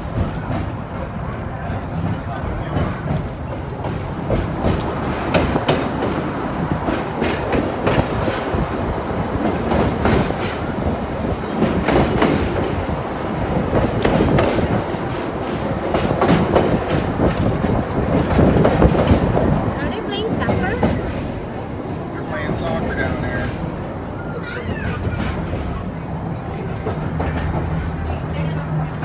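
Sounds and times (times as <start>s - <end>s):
streetcar rumbling: 0.0s - 29.0s
wheels clicking over rail joints: 9.3s - 21.4s.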